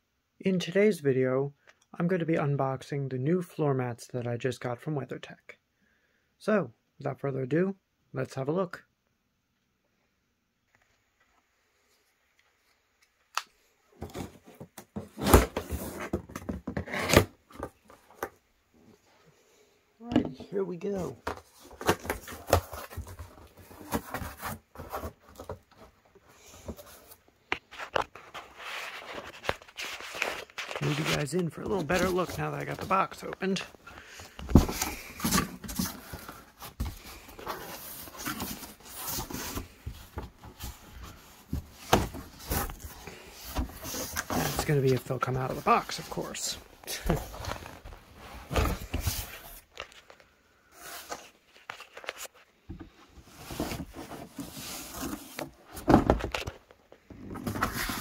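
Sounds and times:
cardboard scraping and rustling: 0:14.0 - 0:18.3, 0:20.4 - 0:50.0, 0:50.7 - 0:58.0.

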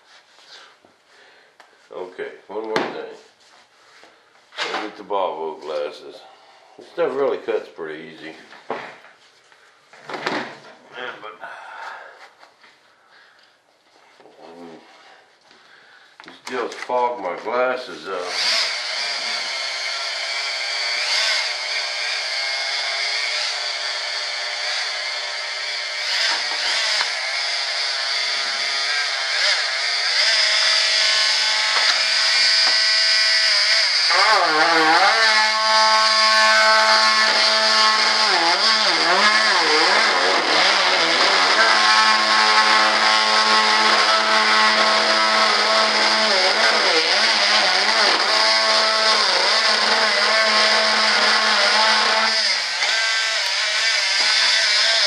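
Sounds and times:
oscillating saw cutting fibreglass: 0:18.3 - 0:55.0.

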